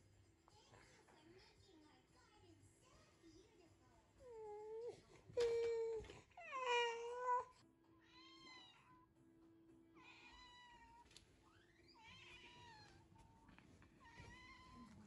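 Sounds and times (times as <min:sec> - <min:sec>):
cat meowing: 0:06.4 - 0:09.0, 0:10.0 - 0:11.0, 0:11.8 - 0:13.1, 0:14.0 - 0:15.0.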